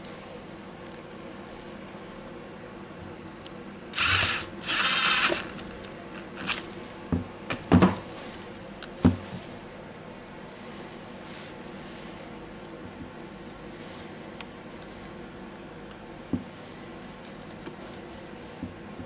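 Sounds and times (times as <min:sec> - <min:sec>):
impact driver running: 0:04.0 - 0:05.7.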